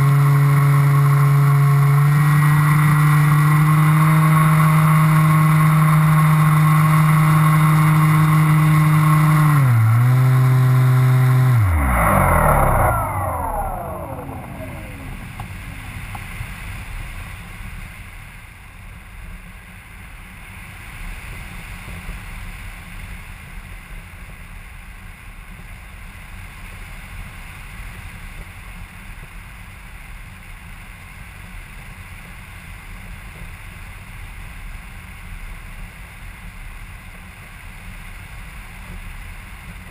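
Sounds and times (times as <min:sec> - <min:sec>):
propeller motor high pitch: 0:00.0 - 0:16.7.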